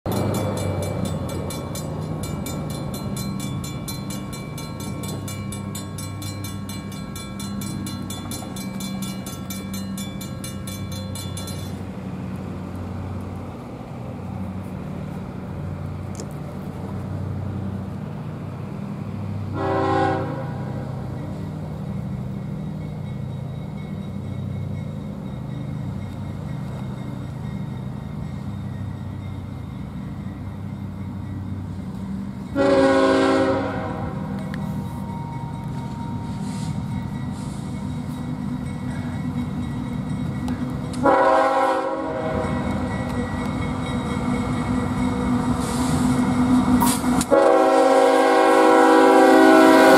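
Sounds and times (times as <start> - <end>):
locomotive bell ringing: 0.1 - 12.2, 19.6 - 49.9
diesel locomotive engine drone: 0.1 - 49.9
locomotive horn blast: 19.5 - 20.9, 32.6 - 34.4, 41.0 - 42.8, 46.8 - 49.9.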